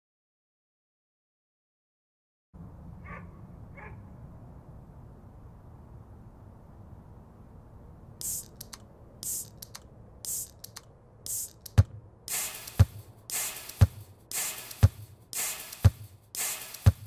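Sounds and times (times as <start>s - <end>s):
light clicks: 8.2s - 11.8s
hissing percussion hit: 11.3s - 17.0s
deep kick drum: 12.8s - 13.0s, 13.8s - 14.1s, 14.8s - 15.1s, 15.8s - 16.1s.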